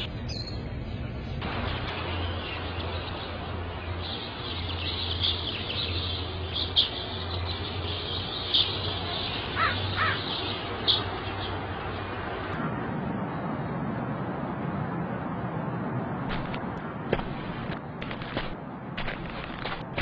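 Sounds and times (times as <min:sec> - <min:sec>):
birds chirping: 0:00.0 - 0:12.5
low hum and hiss: 0:00.0 - 0:20.0
low bird calls: 0:04.0 - 0:11.6.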